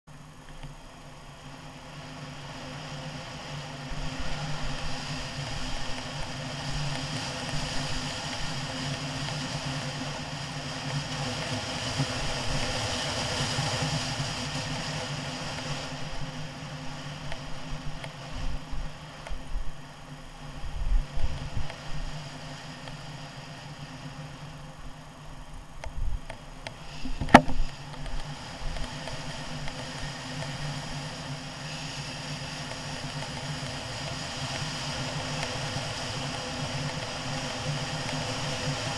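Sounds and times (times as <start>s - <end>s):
wind buffeting microphone: 20.4s - 22.2s.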